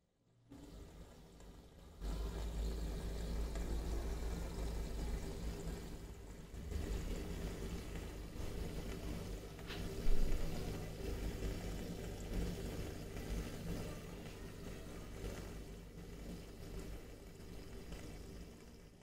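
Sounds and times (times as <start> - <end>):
pump and filter hum: 0.2 - 19.0
aquarium air stone bubbling: 0.5 - 19.0.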